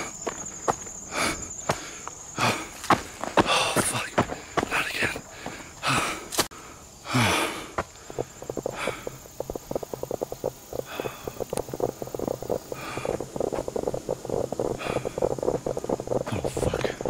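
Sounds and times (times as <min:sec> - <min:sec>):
person breathing hard: 0:00.0 - 0:09.2, 0:10.8 - 0:13.8, 0:14.4 - 0:17.0
steady low hum: 0:00.0 - 0:17.0
rapid crackle: 0:07.1 - 0:17.0
rush of noise: 0:08.2 - 0:17.0.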